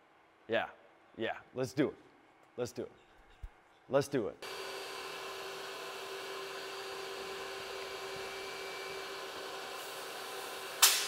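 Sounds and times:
compressed air blasting hiss: 0:09.6 - 0:11.0.

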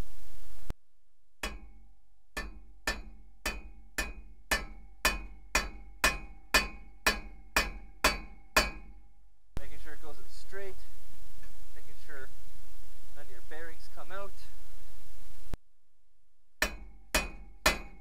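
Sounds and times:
hammer striking steel: 0:01.4 - 0:09.1, 0:16.6 - 0:18.0.

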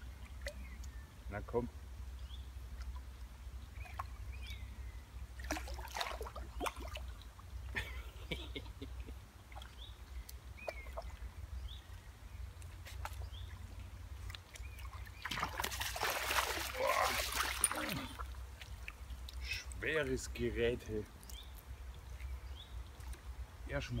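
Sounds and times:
water splashing and sloshing: 0:00.0 - 0:01.0, 0:05.3 - 0:08.2, 0:09.0 - 0:20.3, 0:21.0 - 0:23.6.

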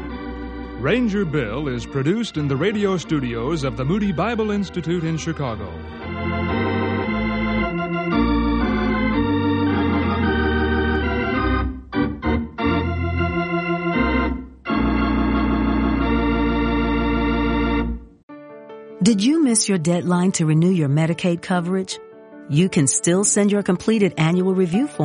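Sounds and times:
organ playing sustained chords: 0:00.0 - 0:18.2.

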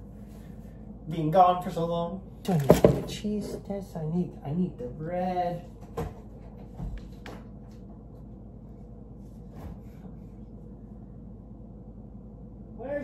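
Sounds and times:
low room hum: 0:00.0 - 0:13.0
knocks and rustling in cupboards: 0:02.5 - 0:03.3, 0:05.8 - 0:07.5.

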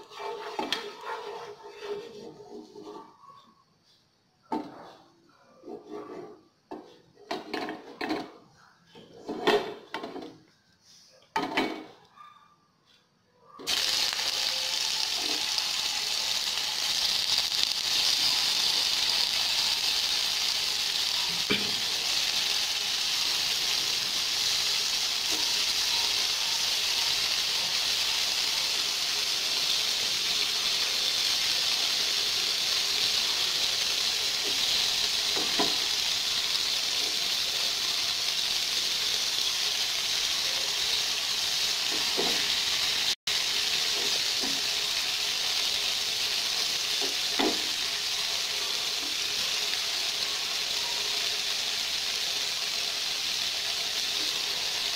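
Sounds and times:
wooden spatula stirring: 0:00.0 - 0:03.3
tofu sizzling in hot oil: 0:13.7 - 0:54.9.

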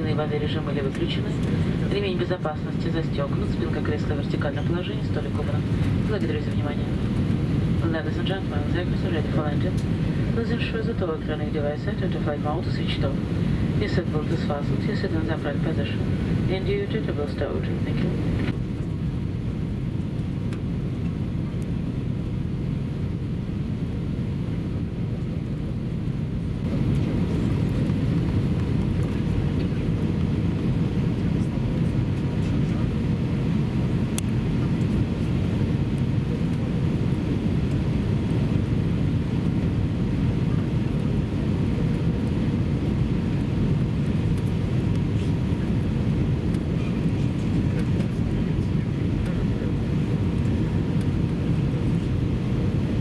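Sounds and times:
aircraft engine roar: 0:00.0 - 0:53.0
rushing air: 0:13.2 - 0:13.9.

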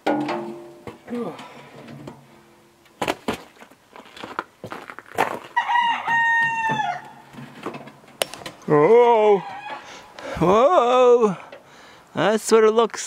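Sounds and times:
rooster crowing: 0:05.6 - 0:07.2, 0:09.2 - 0:10.1.

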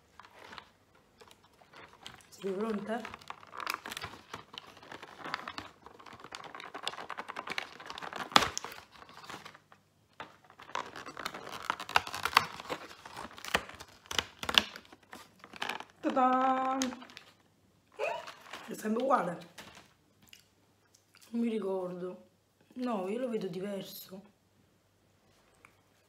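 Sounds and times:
paperboard crinkling and tearing: 0:00.0 - 0:17.4.

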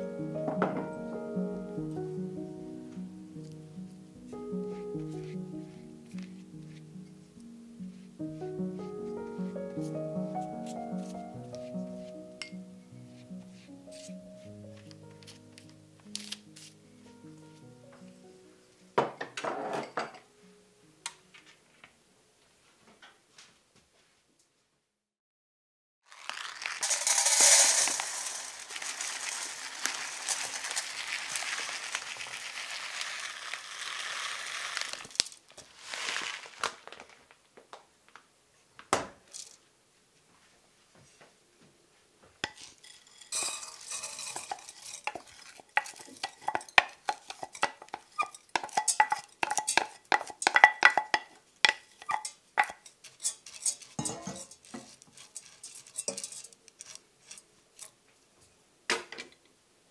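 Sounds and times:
rice rattling in a steel pot: 0:26.1 - 0:37.0, 0:42.4 - 0:57.9
rice pouring onto a scale pan: 0:26.1 - 0:37.2, 0:42.4 - 0:56.5
pot ringing: 0:43.1 - 0:54.6.

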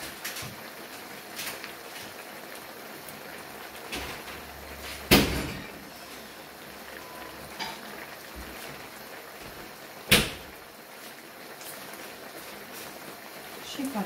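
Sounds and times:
sharp knocks on kitchen surface: 0:10.1 - 0:10.4.

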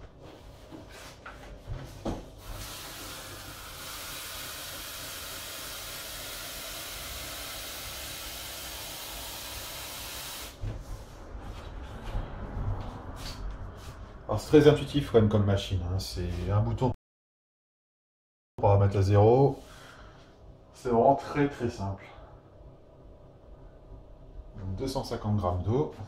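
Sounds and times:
water running from a tap: 0:02.4 - 0:10.5.

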